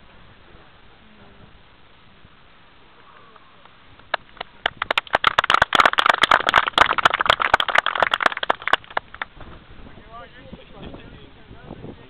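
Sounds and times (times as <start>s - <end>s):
people clapping: 3.0s - 9.3s.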